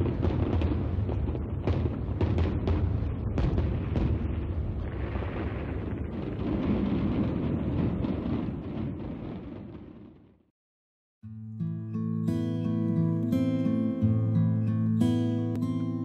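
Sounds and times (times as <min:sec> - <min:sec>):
sharp firework bangs: 0:00.0 - 0:10.3
fireworks bursting and crackling: 0:00.0 - 0:10.5.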